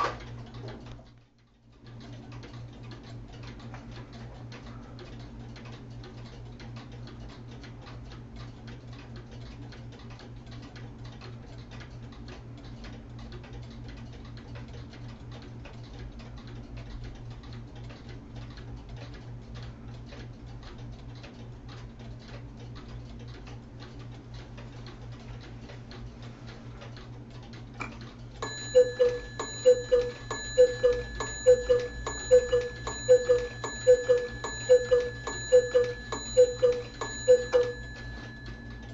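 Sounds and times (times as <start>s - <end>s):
cuckoo clocks ticking: 28.1s - 38.9s
rhythmic chugging train sound: 28.4s - 38.9s
steady high tone: 28.4s - 38.9s.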